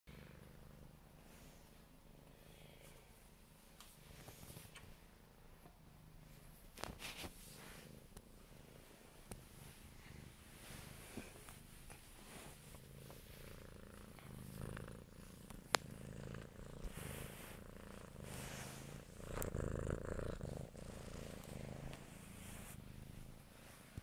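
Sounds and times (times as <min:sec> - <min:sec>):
cat purring: 0:00.1 - 0:02.8, 0:05.6 - 0:24.0
fur rubbing on microphone: 0:16.7 - 0:24.0.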